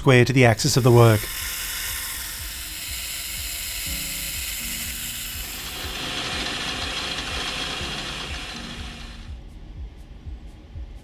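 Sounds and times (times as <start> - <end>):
drill bit boring into metal: 0.7 - 9.3
machine spindle whirring: 0.7 - 9.4.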